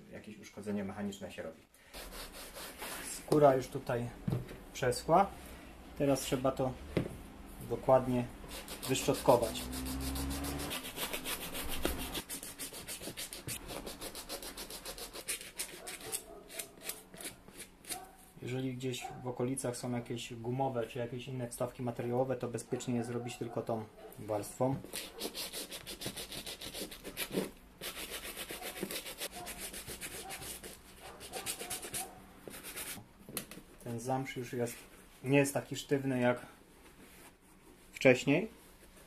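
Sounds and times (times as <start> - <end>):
brush scrubbing suede: 2.0 - 3.4, 8.4 - 16.1, 24.9 - 33.0.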